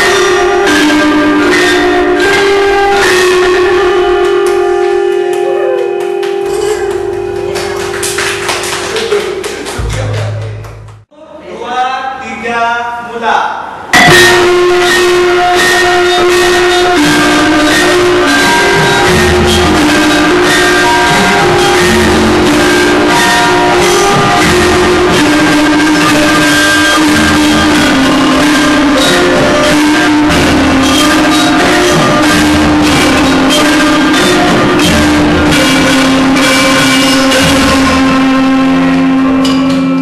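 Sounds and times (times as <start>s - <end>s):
metallophone melody: 0.0s - 8.8s, 14.0s - 40.0s
deep gong stroke: 14.0s - 40.0s.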